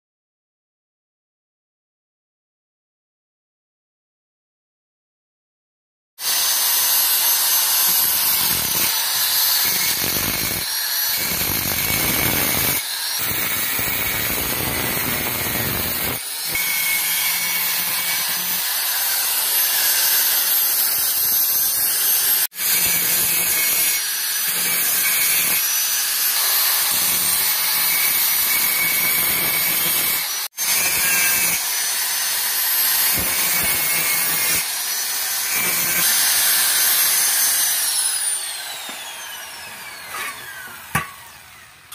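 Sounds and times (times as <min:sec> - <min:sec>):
angle grinder grinding steel: 0:06.2 - 0:41.9.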